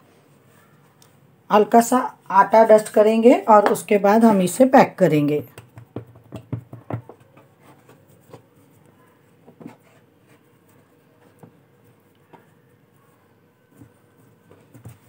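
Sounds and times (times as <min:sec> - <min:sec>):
hands tapping and rubbing dough: 0:03.6 - 0:03.9, 0:05.3 - 0:15.0.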